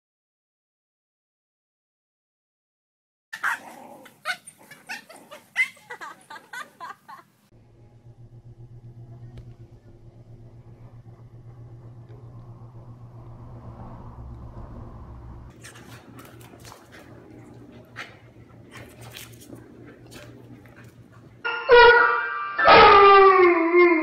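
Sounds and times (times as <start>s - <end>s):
dogs barking and yelping: 3.4s - 6.9s
low pulsing hum: 7.6s - 21.5s.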